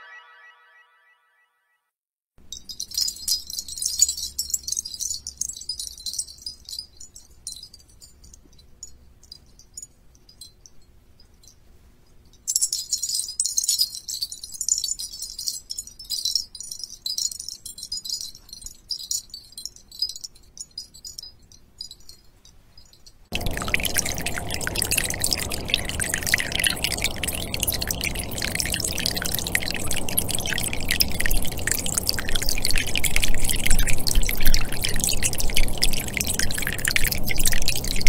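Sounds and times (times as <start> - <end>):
shimmer of tinkling chimes: 0.0 - 0.8, 23.0 - 36.2.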